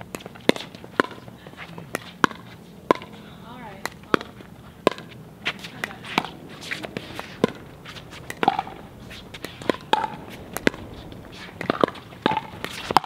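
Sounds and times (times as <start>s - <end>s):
paddles hitting plastic ball: 0.1s - 3.1s, 3.8s - 10.8s.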